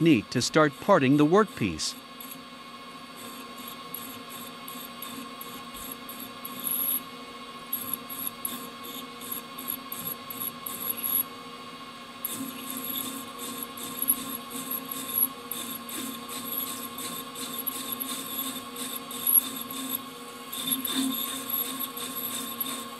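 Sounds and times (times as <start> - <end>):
high-pitched cutting noises: 0.0 - 2.4
metal lathe whining: 12.3 - 22.9.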